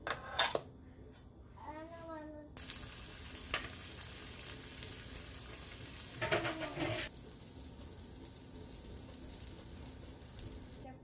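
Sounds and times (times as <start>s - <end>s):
bread sizzling in a pan: 2.6s - 10.9s.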